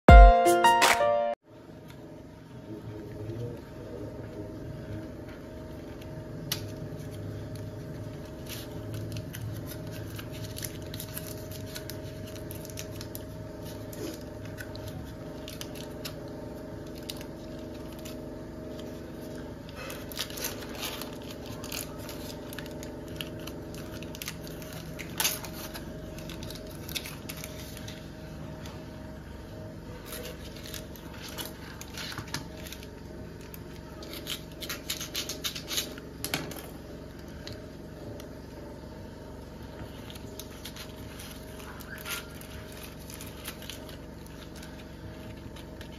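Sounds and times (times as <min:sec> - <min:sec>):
low background hum: 0:01.0 - 0:45.9
cardboard and paper tearing: 0:08.2 - 0:16.2, 0:16.8 - 0:28.1, 0:30.0 - 0:32.9, 0:39.9 - 0:45.9.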